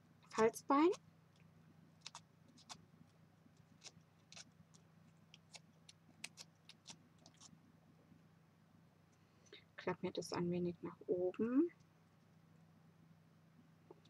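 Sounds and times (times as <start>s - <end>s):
low steady hum: 0.0s - 14.0s
paper pieces ticking and scraping: 2.0s - 2.8s, 3.6s - 7.5s.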